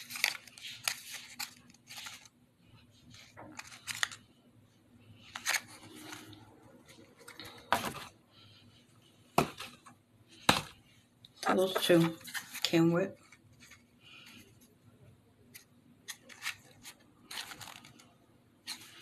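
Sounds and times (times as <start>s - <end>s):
toy packaging clicks and rustles: 0.0s - 2.4s, 3.1s - 4.3s, 5.2s - 8.1s, 15.6s - 19.0s.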